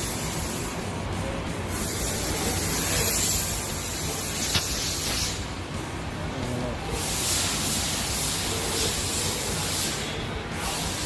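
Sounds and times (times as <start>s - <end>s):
sharp click: 4.4s - 5.2s.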